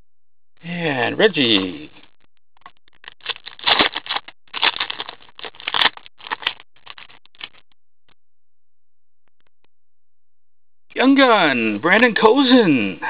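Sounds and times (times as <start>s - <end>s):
foil wrapper tearing and crinkling: 3.0s - 7.6s.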